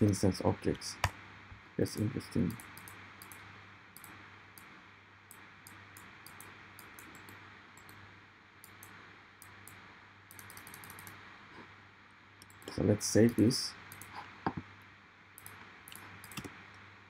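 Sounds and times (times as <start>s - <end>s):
low steady hum: 0.0s - 17.0s
mouse and keyboard clicking: 8.6s - 11.2s, 15.4s - 16.6s.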